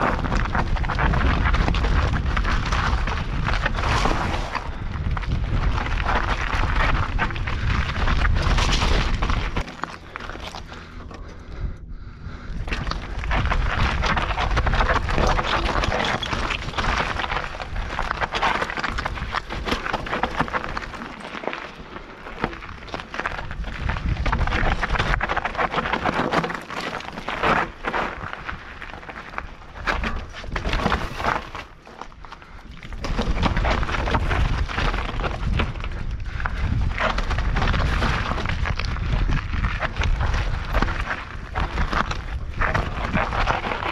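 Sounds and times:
wind on microphone: 0.0 - 9.6, 11.3 - 18.3, 23.3 - 25.4
clicks of stones and bike parts: 0.0 - 11.5, 12.6 - 43.9
bike tyres crunching over gravel: 0.0 - 11.7, 12.3 - 43.9.

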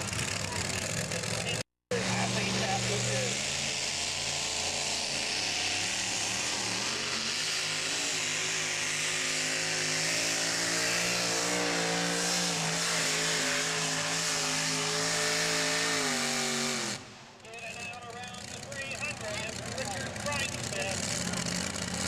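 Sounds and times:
truck engine running at full load: 0.0 - 22.0.

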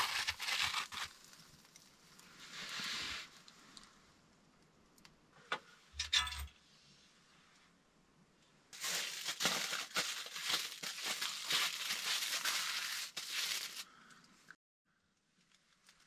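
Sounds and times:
aluminium foil crinkling: 0.0 - 2.8, 8.8 - 14.2, 15.4 - 16.0.

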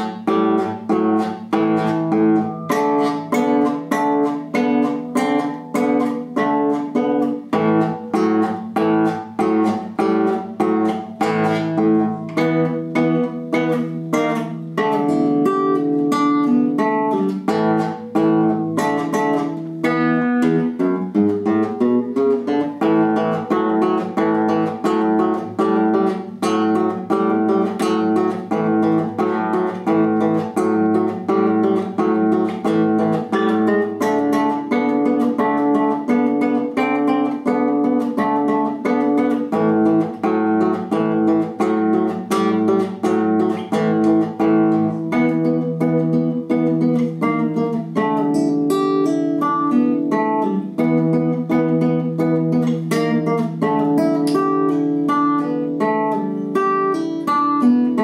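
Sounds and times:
classical guitar plucked melody: 0.0 - 58.0.

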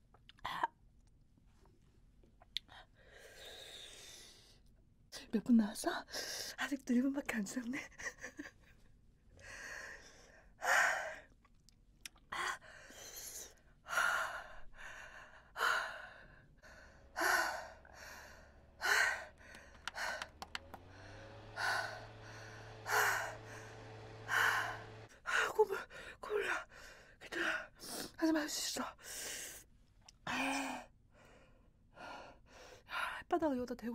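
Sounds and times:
woman breathing hard: 9.4 - 11.3, 12.4 - 28.0
low steady hum: 12.3 - 29.0.

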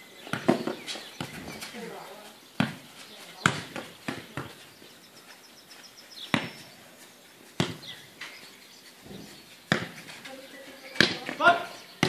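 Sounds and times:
football kicked with thuds: 2.6 - 4.7, 6.3 - 6.7, 7.6 - 8.0, 9.1 - 10.1, 11.0 - 11.6.

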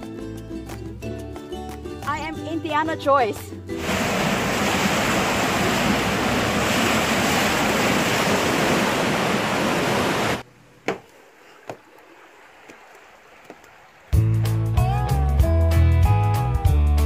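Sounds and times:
water rushing into lock chamber: 3.8 - 10.4.

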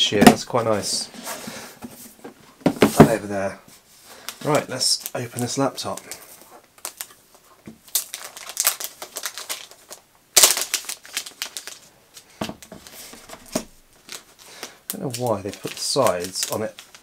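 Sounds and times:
plastic wrap crinkling: 4.2 - 17.0.

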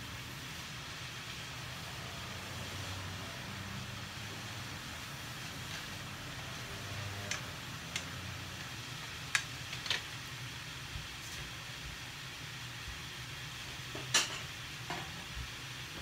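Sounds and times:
food sizzling in a frying pan: 0.0 - 16.0
chopsticks clicking against pan: 7.2 - 10.1.

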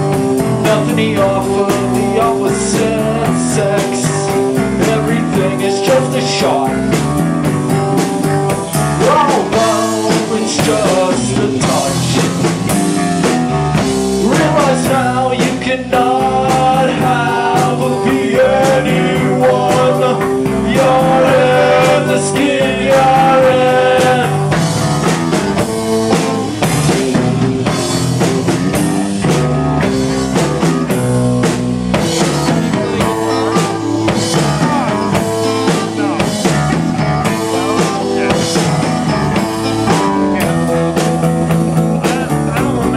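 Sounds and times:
drum kit: 0.0 - 42.9
electric guitar: 0.0 - 42.9
person singing: 0.4 - 7.0, 9.0 - 12.5, 14.1 - 24.6, 32.2 - 42.9.

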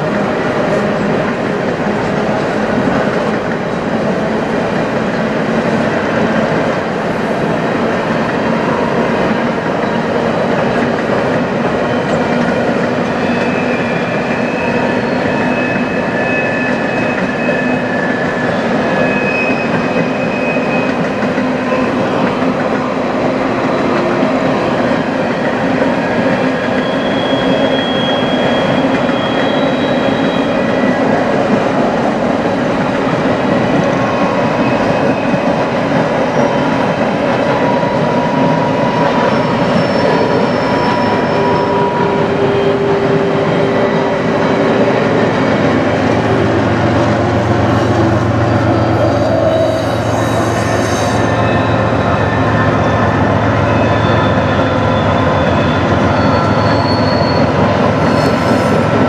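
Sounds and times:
train wheels rumbling on rails: 0.0 - 59.0
high wheel squeal: 13.1 - 22.2, 26.3 - 31.2, 37.6 - 59.0.

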